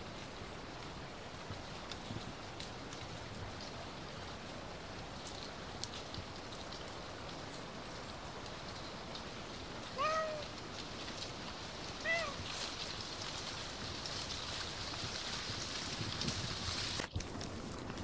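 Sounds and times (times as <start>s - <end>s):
patter on dry leaves: 0.0s - 18.0s
small ticks: 5.2s - 17.8s
cat meowing: 10.0s - 10.5s, 12.0s - 12.5s.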